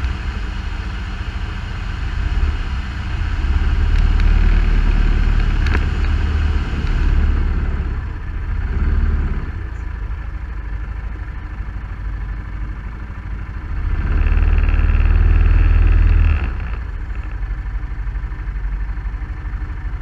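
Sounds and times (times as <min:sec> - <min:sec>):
off-road vehicle engine: 0:00.0 - 0:20.0.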